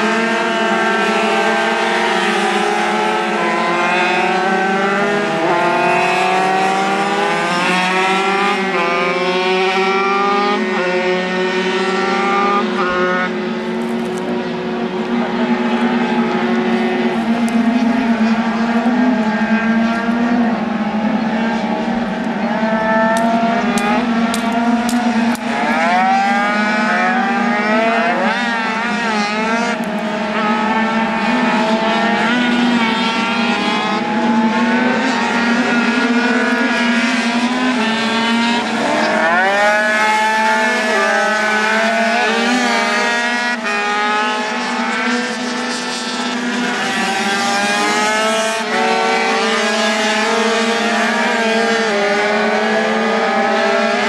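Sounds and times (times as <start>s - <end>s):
scooter engines revving: 0.0s - 54.0s.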